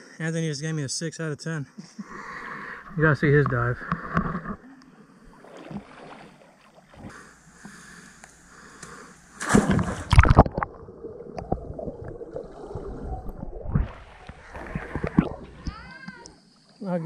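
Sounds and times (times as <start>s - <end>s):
water sloshing and gurgling: 3.4s - 7.2s, 9.4s - 16.4s
loud splash of diver: 9.4s - 10.5s
muffled underwater bubbling: 10.0s - 15.8s.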